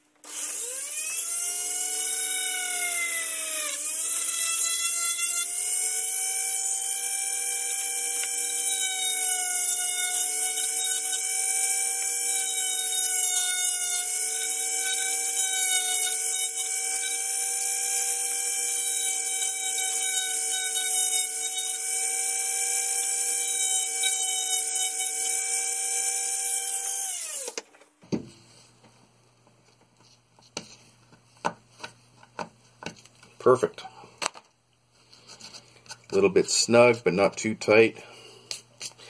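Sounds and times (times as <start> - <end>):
electric drill whining: 0.2 - 27.6.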